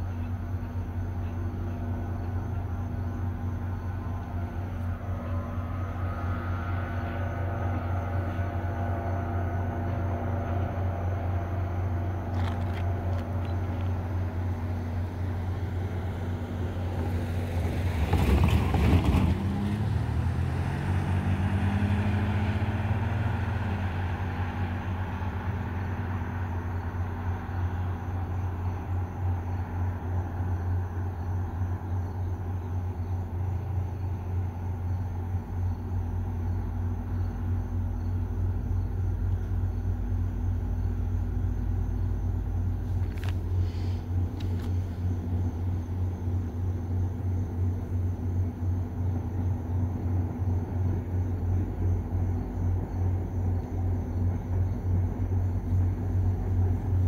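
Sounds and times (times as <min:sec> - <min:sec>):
steady low hum: 0:00.0 - 0:18.2, 0:19.8 - 0:57.0
truck driving past: 0:00.0 - 0:57.0.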